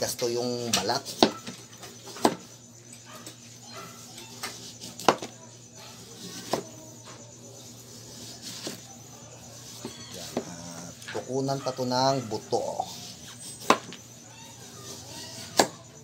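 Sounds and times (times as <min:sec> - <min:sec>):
knife paring hard skin: 0:08.0 - 0:08.9.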